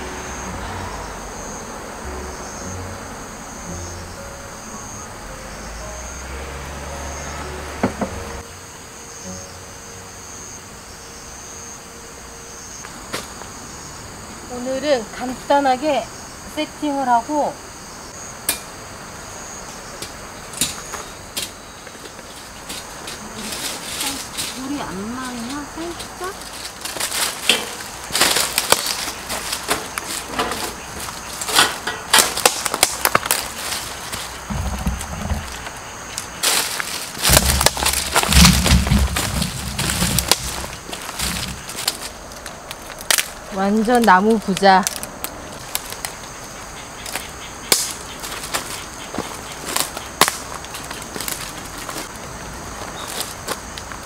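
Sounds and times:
insect chorus: 0.0s - 54.0s
branches dragged over gravel: 20.7s - 47.3s, 48.0s - 54.0s
twigs snapping: 25.9s - 52.2s
sharp knocks: 37.2s - 41.9s.

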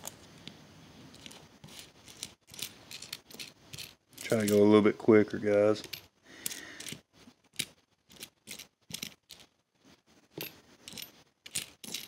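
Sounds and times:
coins clicking together: 1.2s - 4.6s, 7.6s - 9.5s, 10.4s - 12.0s.

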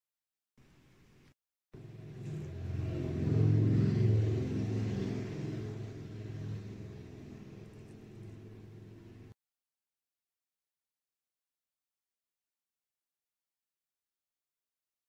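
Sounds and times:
motor vehicle passing: 1.8s - 9.4s.

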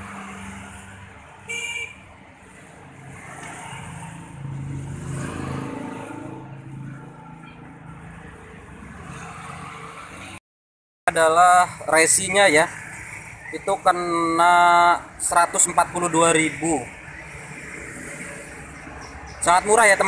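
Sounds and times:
high horn beep: 1.5s - 2.0s
vehicle engine passing: 2.4s - 10.4s.

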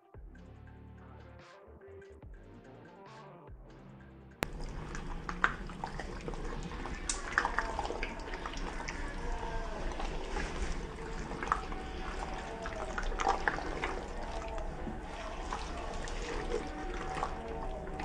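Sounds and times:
spatula stirring pasta in sauce: 4.4s - 18.0s.

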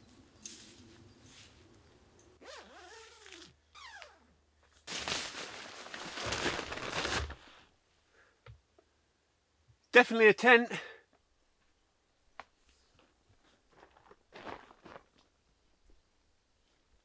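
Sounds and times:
nylon fabric rustling: 2.4s - 3.9s, 4.8s - 7.6s
tent zip pulled open: 2.4s - 4.3s.

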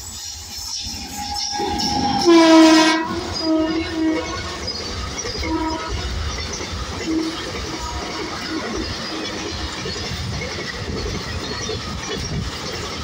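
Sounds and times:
train rumble and wheel clatter: 0.0s - 13.0s
locomotive horn blasts: 1.0s - 4.7s, 5.4s - 6.2s, 7.0s - 8.5s.

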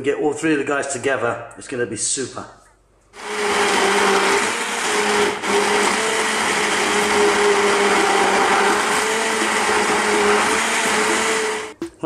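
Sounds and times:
stick blender motor whine: 3.2s - 11.8s
thick sauce churning: 3.2s - 11.8s.

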